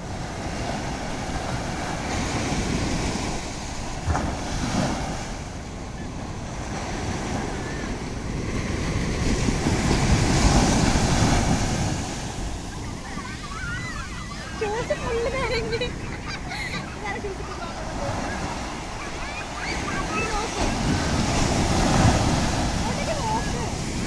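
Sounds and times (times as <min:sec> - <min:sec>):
surf breaking on beach: 0:00.0 - 0:24.0
wind buffeting microphone: 0:00.0 - 0:24.0.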